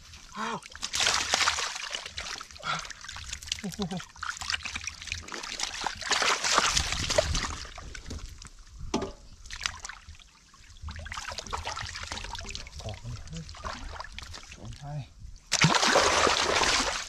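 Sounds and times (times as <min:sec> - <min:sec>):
water dripping: 0:00.1 - 0:10.2
hands splashing in muddy water: 0:00.4 - 0:08.1, 0:15.5 - 0:17.0.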